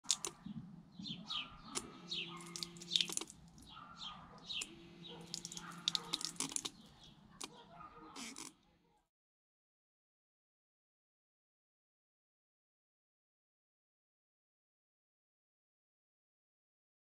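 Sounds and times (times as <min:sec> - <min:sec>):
birds chirping: 0:00.0 - 0:08.5
water pump humming: 0:01.6 - 0:03.7, 0:04.4 - 0:06.8.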